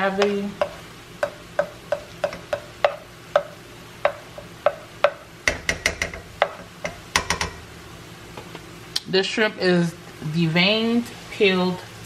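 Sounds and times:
spoon knocking on steel skillet: 0.1s - 7.6s.

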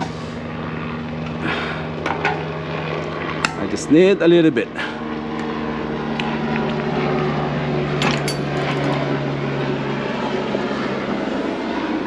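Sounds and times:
lawn mower engine running: 0.0s - 3.9s, 7.4s - 9.9s
wrench clinking on metal: 8.0s - 9.0s.

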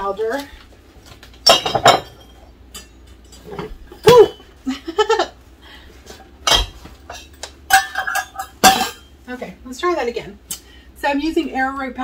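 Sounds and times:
glass and utensils clinking: 1.4s - 4.4s, 6.4s - 9.1s.

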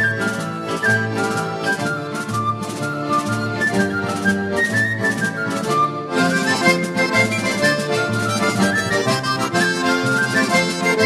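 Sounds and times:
accordion dance music: 0.0s - 11.0s.

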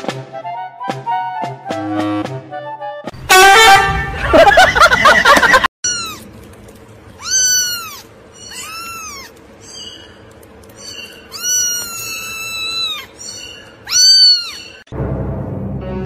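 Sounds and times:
kitten meowing: 5.8s - 6.3s, 7.2s - 10.0s, 10.8s - 14.8s.

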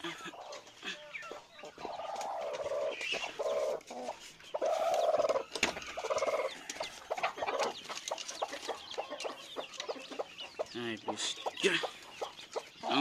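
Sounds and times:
hen clucking: 0.0s - 13.0s.

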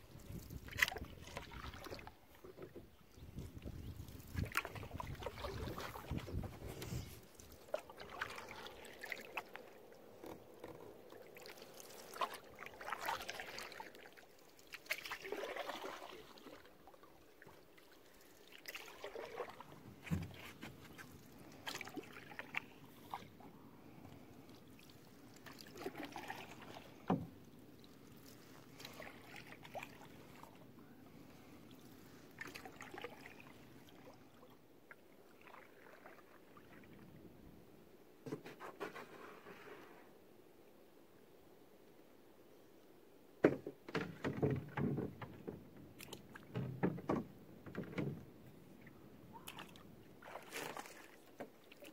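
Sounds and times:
paddle swishing and dripping in water: 0.0s - 37.5s, 43.4s - 51.9s
paddle knocks: 43.4s - 48.3s.

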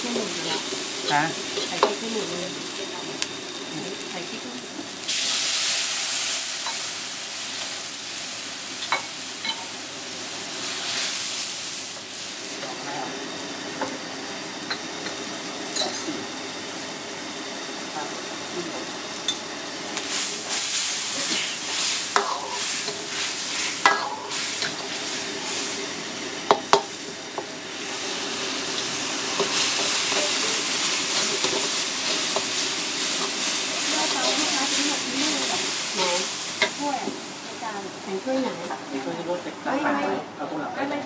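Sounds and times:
sauce sizzling in a wok: 0.0s - 41.0s
ladle scraping and knocking wok: 20.1s - 25.6s, 29.3s - 35.0s.

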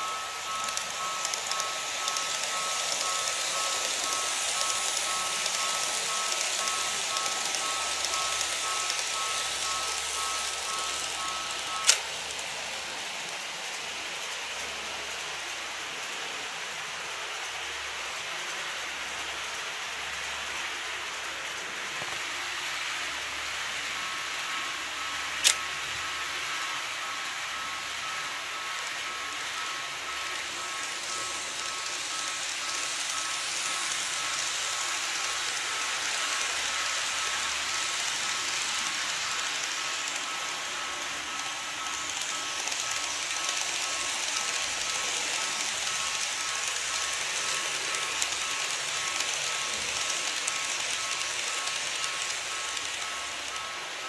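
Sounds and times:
two-tone warning bell ringing: 0.0s - 13.0s, 23.9s - 54.0s
model trains running on track: 0.0s - 54.0s.

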